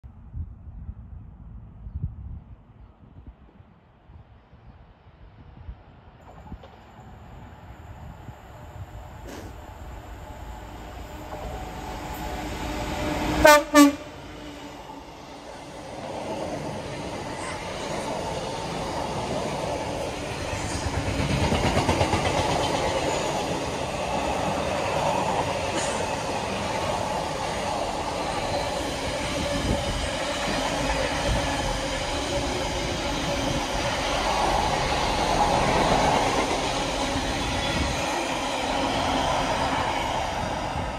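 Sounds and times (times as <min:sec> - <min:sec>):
freight train wheels rumbling: 0:06.2 - 0:40.9
rhythmic clatter of train wheels: 0:09.2 - 0:40.9.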